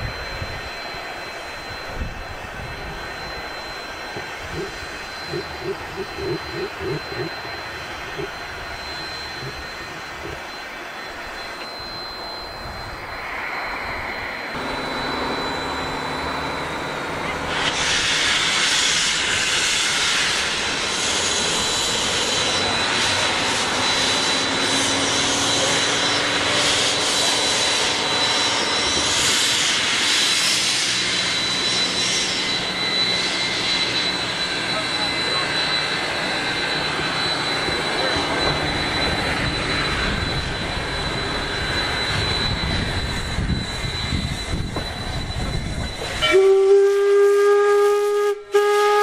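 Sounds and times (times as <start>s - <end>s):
steam locomotive moving off: 0.0s - 49.0s
loud hiss of steam: 17.4s - 49.0s.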